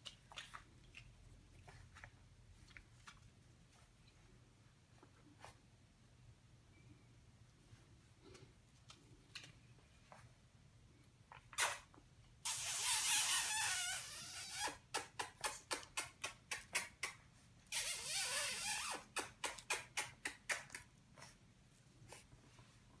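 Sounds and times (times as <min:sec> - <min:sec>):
puppy snuffling: 0:12.5 - 0:22.9.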